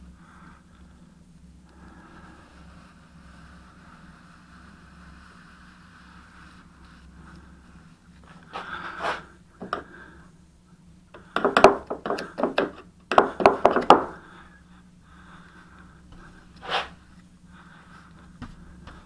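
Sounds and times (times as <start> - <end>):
faint steady hum: 0.0 - 19.0
brush stroke on wood: 2.0 - 9.3, 16.1 - 17.2.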